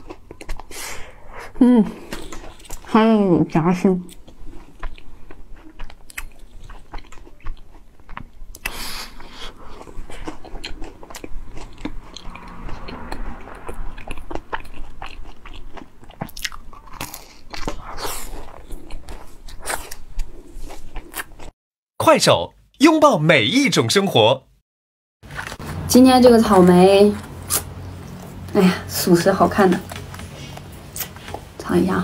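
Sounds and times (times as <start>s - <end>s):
crisp crunching while chewing: 4.1s - 21.5s.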